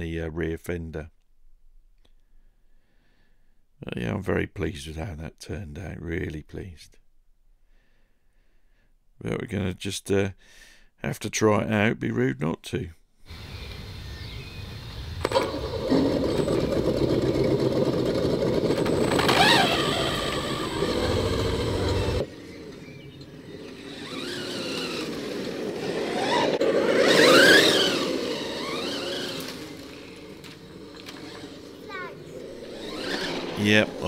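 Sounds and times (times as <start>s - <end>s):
toy truck motor whining: 13.3s - 34.0s.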